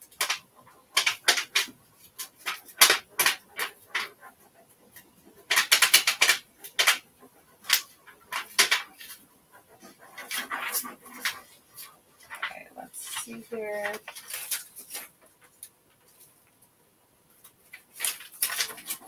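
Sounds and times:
plastic sheet crinkling: 0:10.1 - 0:16.5, 0:17.3 - 0:19.0.

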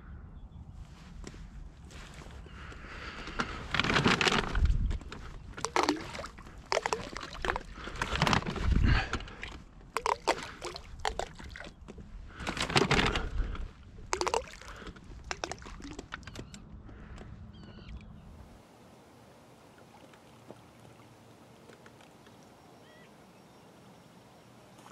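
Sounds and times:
bait splashing on water: 0:03.0 - 0:16.6.

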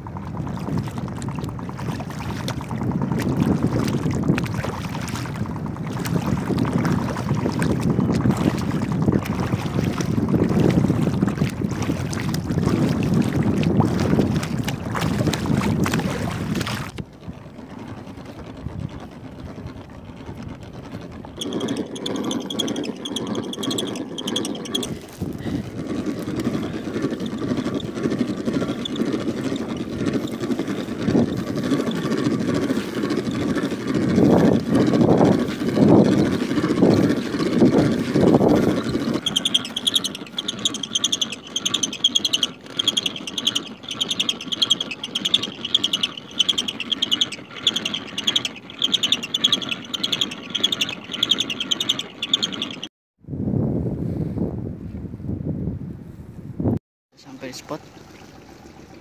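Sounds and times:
wind on microphone: 0:00.0 - 0:40.9, 0:53.2 - 0:56.8
water sloshing: 0:00.0 - 0:52.9, 0:57.2 - 0:59.0
fishing gear knocking and rustling: 0:01.1 - 0:52.9
high wavering chirp: 0:21.4 - 0:24.9, 0:38.6 - 0:52.9.

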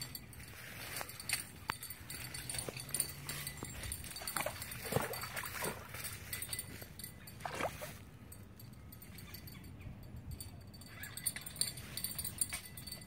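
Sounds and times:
water sloshing and splashing: 0:02.1 - 0:08.0.

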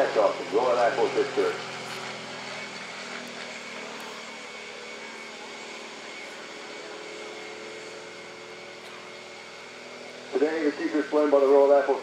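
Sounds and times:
turboprop engines running: 0:00.0 - 0:12.0.

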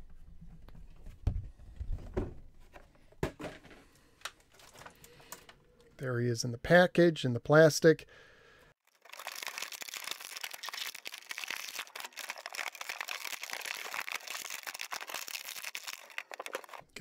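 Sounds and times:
plastic packaging crinkling: 0:08.8 - 0:16.9.

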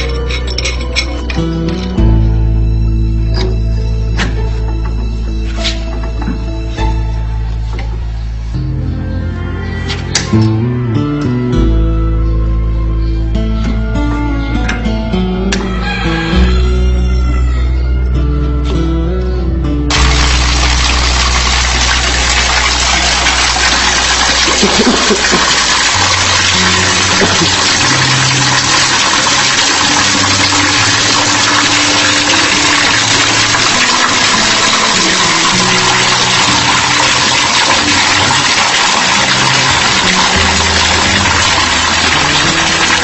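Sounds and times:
water rushing and churning: 0:19.9 - 0:43.0.

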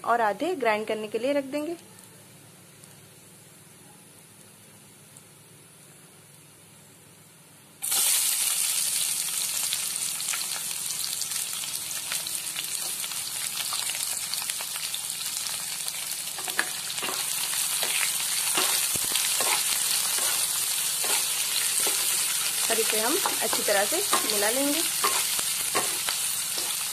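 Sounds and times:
onions sizzling in hot oil: 0:07.8 - 0:26.9
spatula scraping pan: 0:16.4 - 0:22.3, 0:23.2 - 0:26.9.

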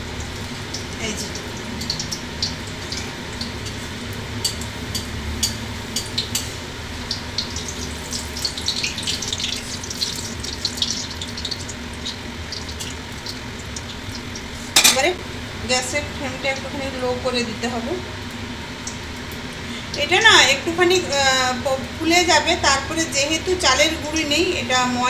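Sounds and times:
oil crackling and popping: 0:00.0 - 0:15.1
batter sizzling in hot oil: 0:00.0 - 0:25.0.

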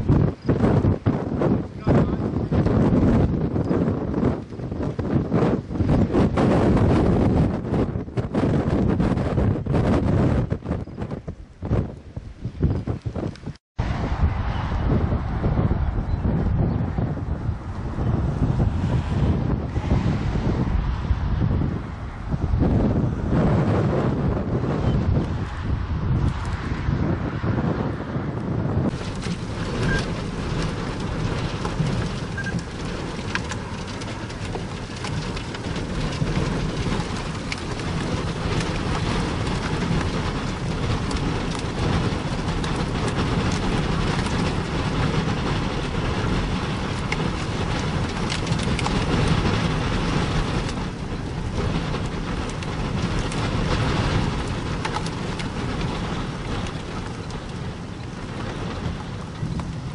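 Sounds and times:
low rumble: 0:28.6 - 0:59.9
steady rain: 0:28.8 - 0:59.9.

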